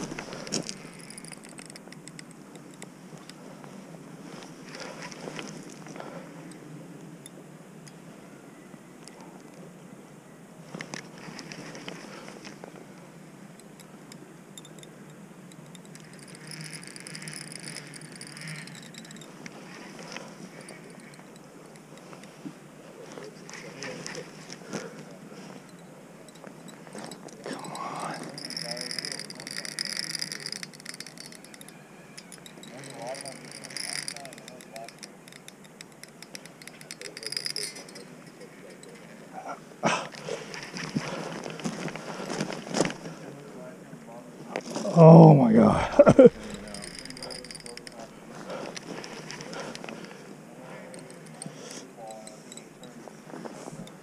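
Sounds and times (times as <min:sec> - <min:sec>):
fishing reel ticking: 0:00.0 - 0:03.4, 0:13.5 - 0:22.4, 0:23.2 - 0:39.4, 0:40.1 - 0:43.1, 0:46.0 - 0:53.0, 0:53.6 - 0:54.0
reel drag buzzing: 0:00.0 - 0:03.7, 0:10.9 - 0:39.4, 0:46.3 - 0:54.0.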